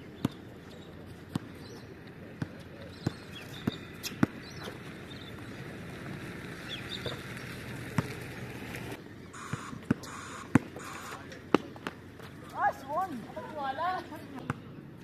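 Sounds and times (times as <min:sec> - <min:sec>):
basketball bouncing on hard court: 0:00.2 - 0:00.4, 0:02.4 - 0:04.8, 0:07.9 - 0:08.2, 0:09.4 - 0:10.8.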